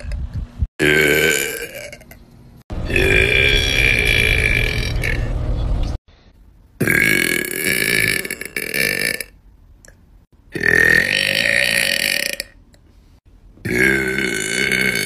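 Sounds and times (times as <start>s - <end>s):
woman burping: 0.8s - 2.1s, 10.5s - 12.6s, 13.7s - 15.0s.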